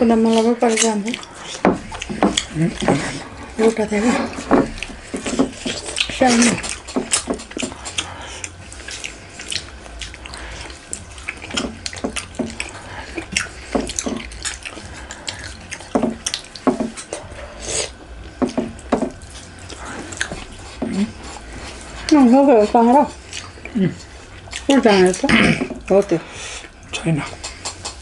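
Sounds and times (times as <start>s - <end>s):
chewing: 0.0s - 28.0s
fingers squelching in food: 0.0s - 28.0s
lip smacks: 0.3s - 3.5s, 4.3s - 22.2s, 23.2s - 25.2s, 26.6s - 28.0s.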